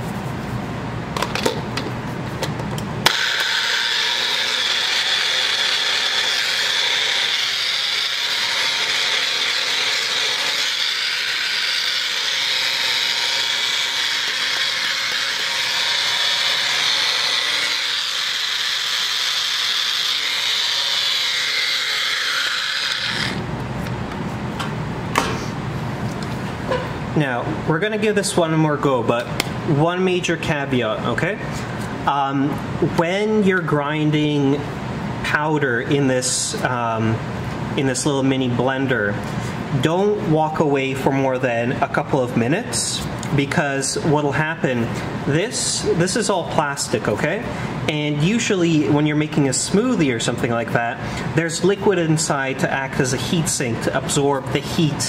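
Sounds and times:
blender grinding salt: 3.1s - 23.4s.

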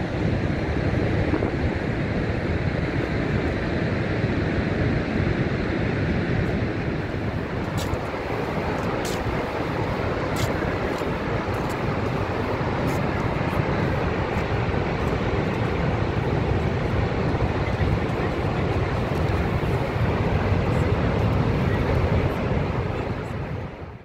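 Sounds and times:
waterfall rushing: 7.0s - 23.6s.

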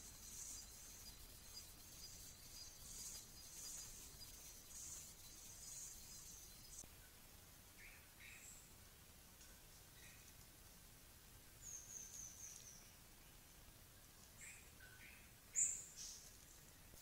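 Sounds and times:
small birds chirping: 0.0s - 6.9s, 11.6s - 17.0s
background hiss: 0.0s - 17.0s.

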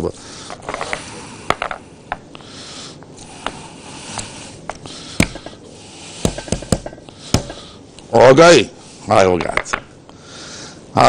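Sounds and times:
room hum: 0.0s - 11.0s.

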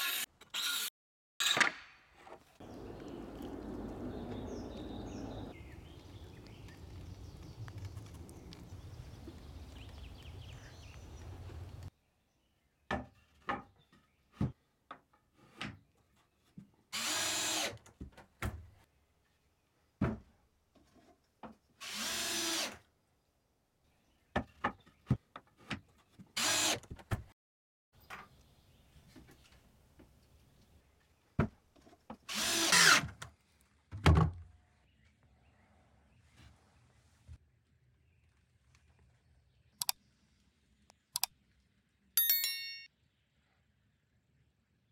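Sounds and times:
power drill drilling into wood: 17.0s - 17.8s, 21.8s - 22.7s, 32.3s - 33.0s.

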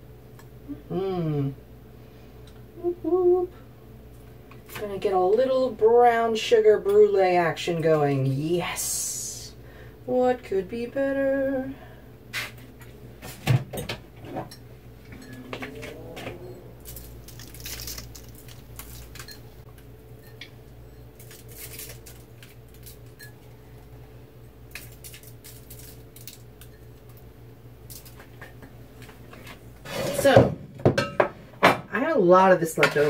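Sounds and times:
low hum: 14.2s - 28.2s.

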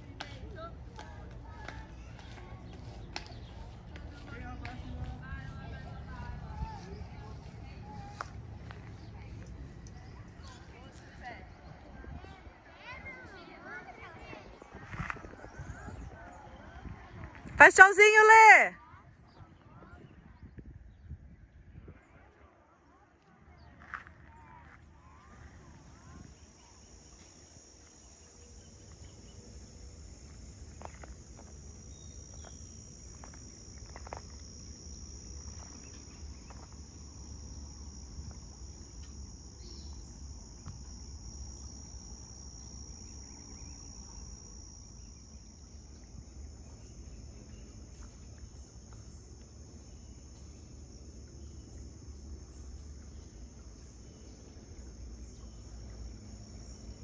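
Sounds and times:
insects chirring: 14.2s - 18.6s, 25.0s - 57.0s.

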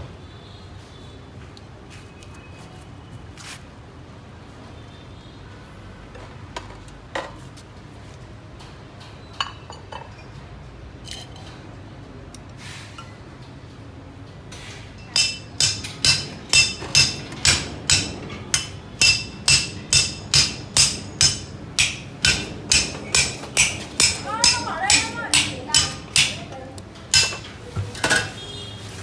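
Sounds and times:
knocks and clinks on metal table: 8.6s - 10.4s, 11.0s - 11.7s, 14.5s - 28.4s.

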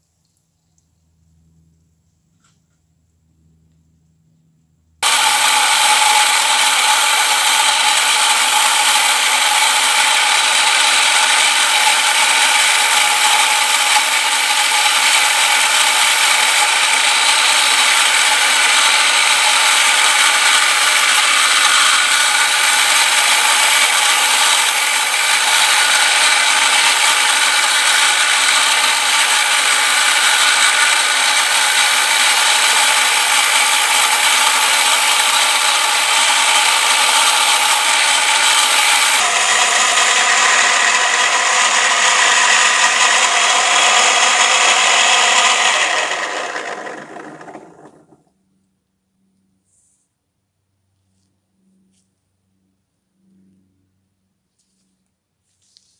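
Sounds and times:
wire wheel grinding metal: 5.0s - 48.2s.

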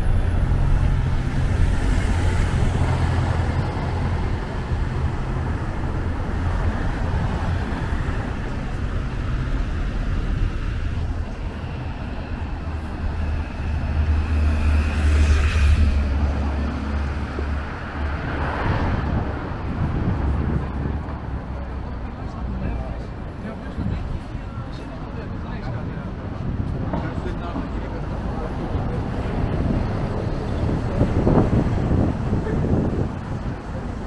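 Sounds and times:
bus engine running: 0.0s - 15.0s
city street traffic: 0.0s - 34.0s
low vehicle rumble: 0.0s - 34.0s.

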